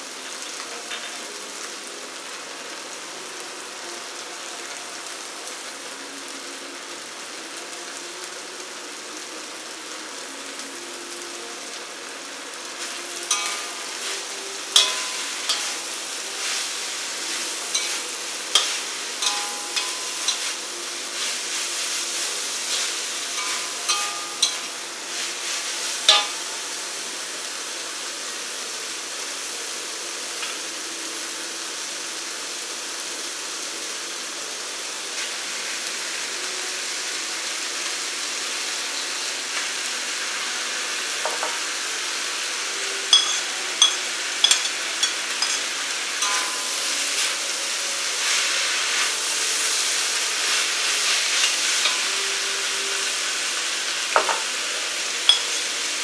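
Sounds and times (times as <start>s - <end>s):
noodles sizzling in a wok: 0.0s - 56.0s
metal spatula scraping a wok: 13.2s - 21.6s, 22.8s - 26.5s, 43.2s - 47.5s, 50.4s - 52.5s.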